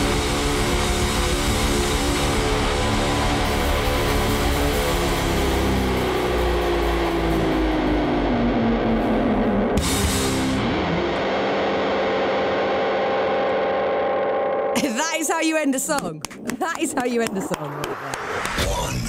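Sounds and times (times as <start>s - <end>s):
distorted electric bass: 0.0s - 14.8s.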